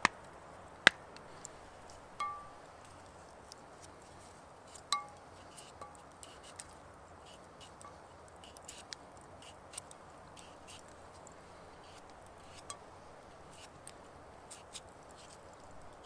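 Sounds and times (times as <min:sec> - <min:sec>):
frying pan ringing clink: 0:02.2 - 0:02.6.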